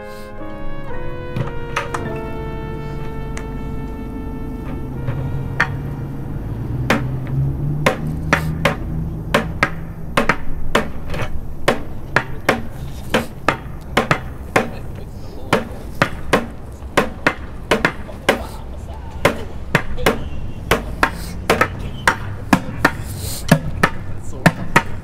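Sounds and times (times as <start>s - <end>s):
drumsticks hitting plastic bucket: 6.9s - 7.2s, 7.9s - 14.9s, 15.5s - 18.6s, 19.2s - 25.0s.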